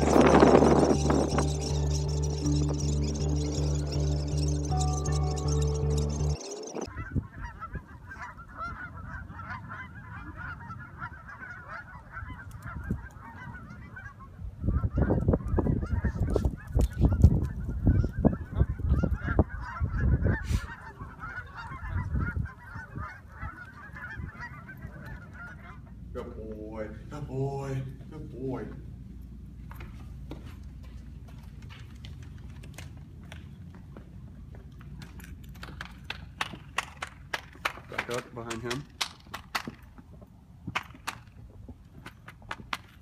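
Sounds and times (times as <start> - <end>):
low rumble: 0.0 - 6.8
geese honking: 0.0 - 16.4, 17.1 - 26.0.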